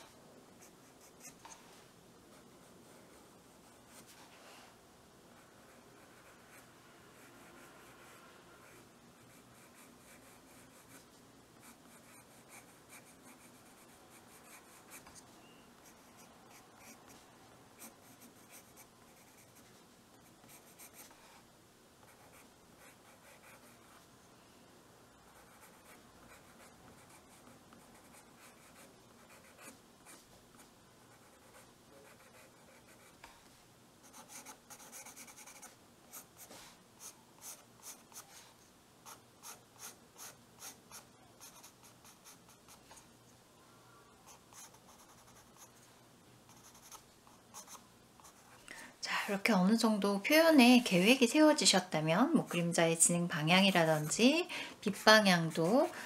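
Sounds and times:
pencil scratching on paper: 5.6 - 15.2, 17.8 - 19.6, 20.4 - 21.4, 22.1 - 24.0, 25.4 - 30.2, 31.1 - 33.2, 34.0 - 38.4, 39.1 - 42.8, 44.3 - 45.8, 46.5 - 48.5.

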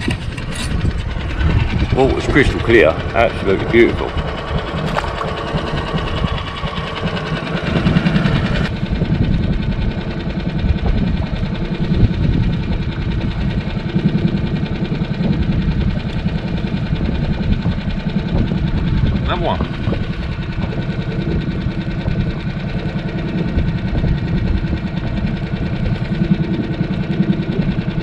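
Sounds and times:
outboard motor running: 0.0 - 28.0.

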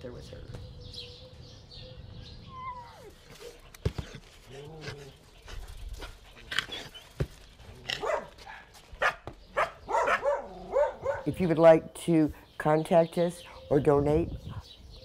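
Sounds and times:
puppies whining and yapping: 2.4 - 3.7.

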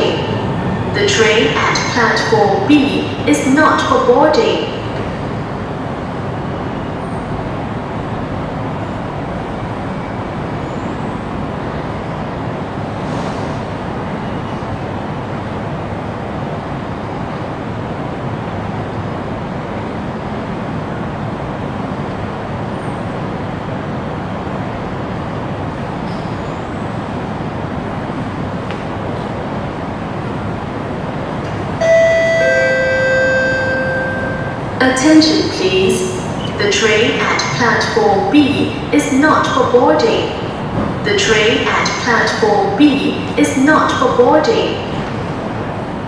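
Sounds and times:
underground train station noise: 0.0 - 46.0.

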